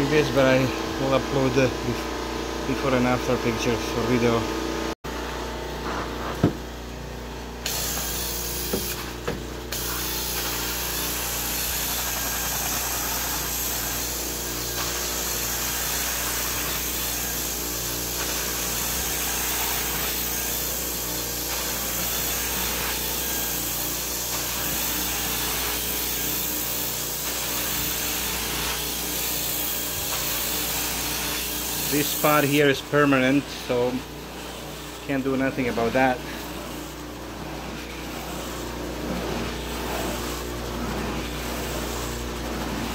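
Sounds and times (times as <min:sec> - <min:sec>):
suction hiss of carpet cleaning wand: 0:07.7 - 0:09.0.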